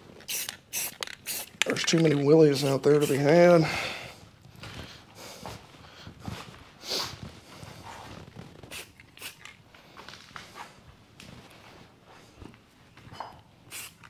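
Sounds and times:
spray can hiss: 0:00.2 - 0:01.7, 0:08.7 - 0:09.4, 0:13.7 - 0:14.0
footsteps: 0:04.5 - 0:13.4.

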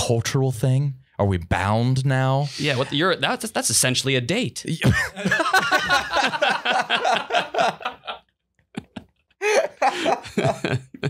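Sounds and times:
men laughing: 0:02.5 - 0:03.0, 0:04.8 - 0:08.2, 0:08.8 - 0:11.0.

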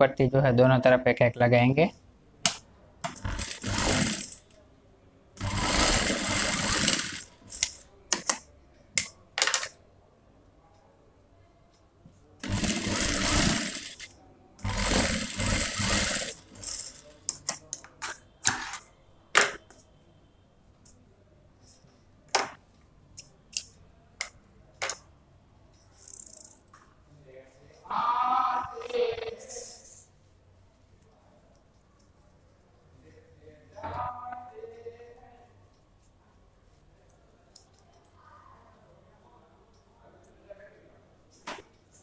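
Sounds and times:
sewing machine stitching: 0:03.1 - 0:04.5, 0:05.4 - 0:07.8, 0:12.4 - 0:17.2.

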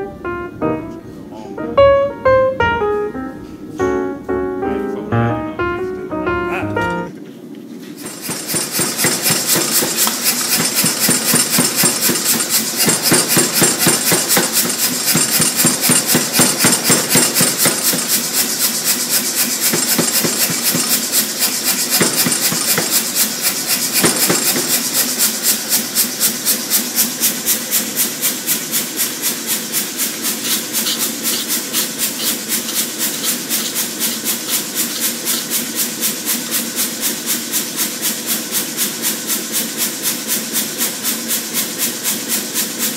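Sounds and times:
power hammer striking steel: 0:08.0 - 0:25.5.

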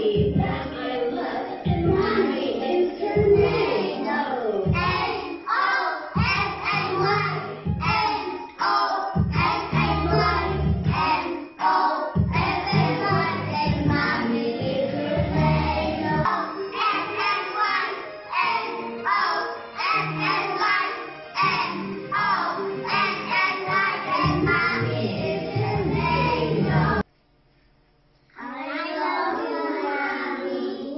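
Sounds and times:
children singing in unison: 0:00.0 - 0:27.0, 0:28.4 - 0:30.9.

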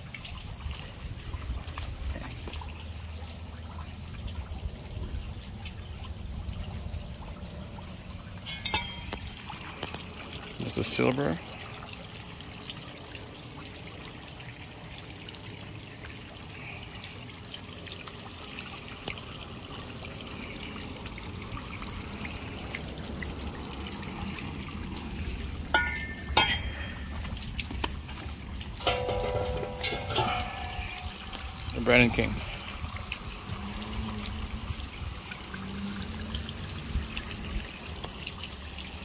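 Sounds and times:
metal exhaust clinks: 0:08.4 - 0:09.5, 0:25.7 - 0:27.4, 0:28.8 - 0:32.9.

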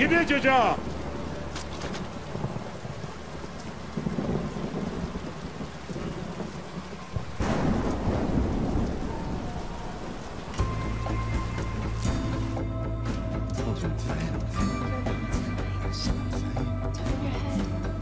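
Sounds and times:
low rolling thunder: 0:00.0 - 0:12.6
heavy rain pouring: 0:00.0 - 0:18.0.

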